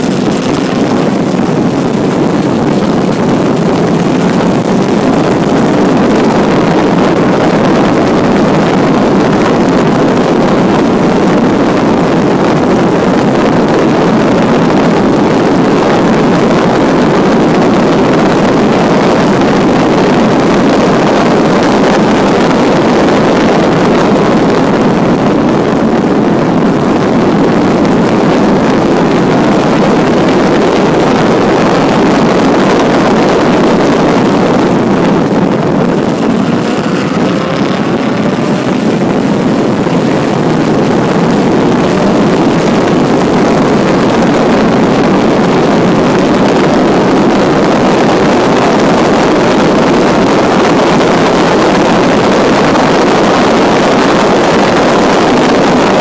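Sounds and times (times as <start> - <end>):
wind rush on microphone: 0.0 - 56.0
car engine under load: 30.9 - 45.0.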